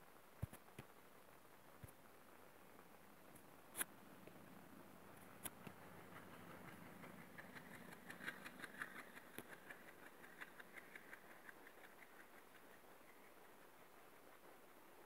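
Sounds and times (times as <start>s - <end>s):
diesel locomotive engine hum: 4.0s - 15.0s
train wheels clicking over rail joints: 5.2s - 14.8s.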